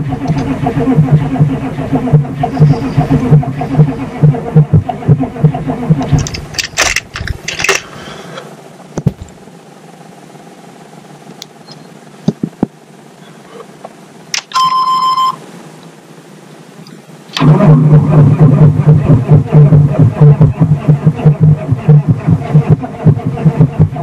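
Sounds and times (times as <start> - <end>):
diesel engine cranking: 0.0 - 9.5, 17.2 - 24.0
electronic warning chime: 14.5 - 15.4.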